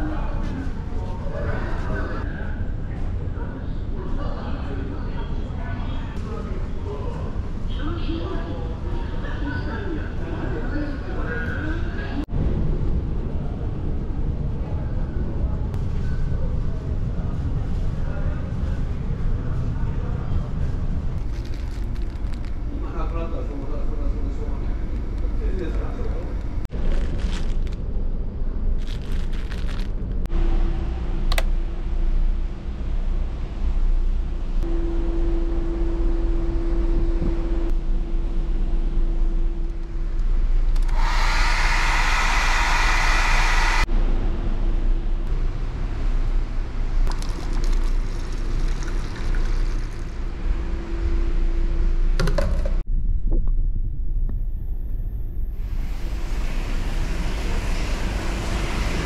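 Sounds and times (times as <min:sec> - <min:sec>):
plastic wrapping crinkling: 0:21.2 - 0:22.6, 0:28.8 - 0:30.0
faint steady hum: 0:30.0 - 0:59.0.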